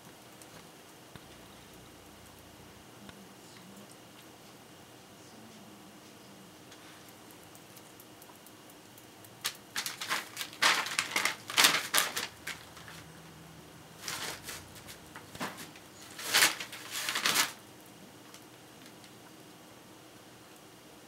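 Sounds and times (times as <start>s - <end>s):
dogs pawing and scratching: 9.8s - 13.0s, 14.0s - 17.6s
bedding rustling: 14.0s - 17.6s.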